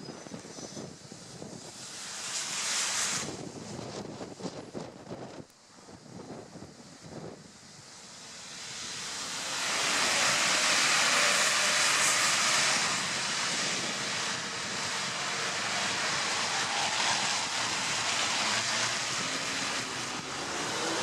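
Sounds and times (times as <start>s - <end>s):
tyres hissing through water: 0.6s - 3.6s, 7.6s - 21.0s
bus passing: 7.9s - 21.0s.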